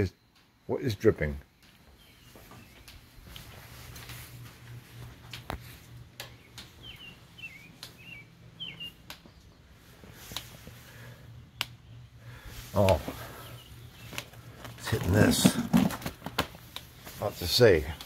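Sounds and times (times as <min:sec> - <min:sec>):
low steady hum: 0:00.0 - 0:18.0
small bird chirping: 0:01.6 - 0:03.2, 0:06.0 - 0:14.6.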